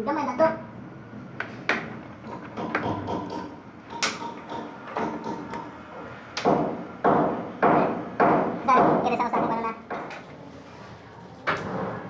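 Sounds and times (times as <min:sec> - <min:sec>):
knocks on plastic pipe fittings: 0:02.5 - 0:05.7.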